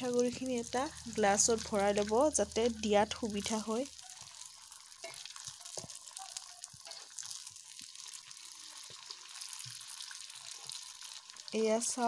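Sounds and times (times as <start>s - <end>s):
batter sizzling in hot oil: 0.0s - 12.0s.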